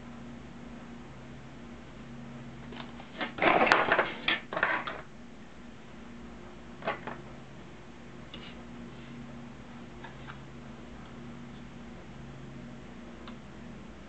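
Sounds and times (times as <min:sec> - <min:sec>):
plastic parts clattering on wooden table: 0:03.2 - 0:05.0.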